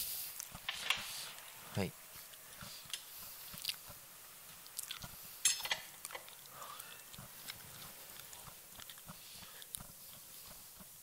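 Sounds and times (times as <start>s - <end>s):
tool clatter: 5.4s - 5.9s
wrenches clicking and scraping: 5.4s - 6.3s.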